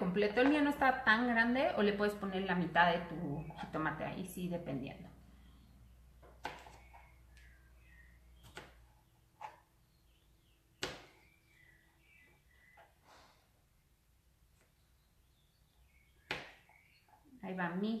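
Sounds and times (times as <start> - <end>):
faint high chirps: 6.8 - 8.7.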